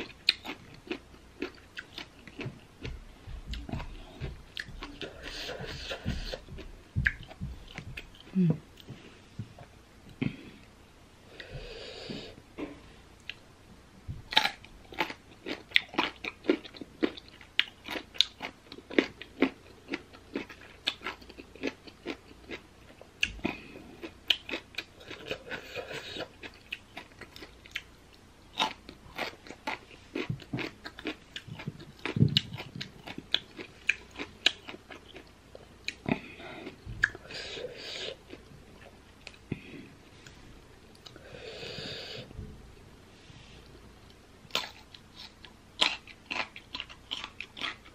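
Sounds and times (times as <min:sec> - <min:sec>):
crunchy fruit bitten and chewed: 0:14.3 - 0:27.9, 0:28.5 - 0:37.2, 0:44.5 - 0:47.9.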